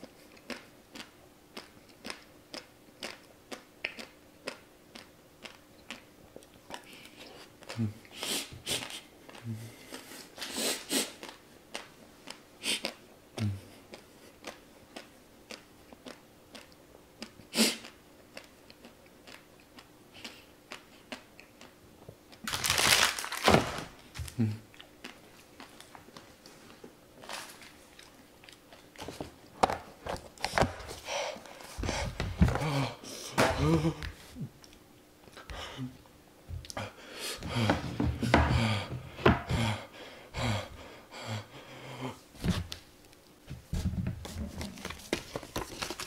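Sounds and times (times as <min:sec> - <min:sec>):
chewing: 0:00.0 - 0:07.8, 0:13.7 - 0:22.5, 0:24.3 - 0:26.8, 0:27.6 - 0:29.2
puffs of breath: 0:36.8 - 0:37.8.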